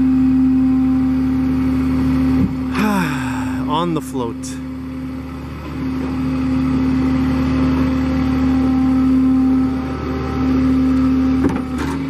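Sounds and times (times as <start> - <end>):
steady pitched hum: 2.3 - 9.9
truck engine idling: 2.6 - 8.6.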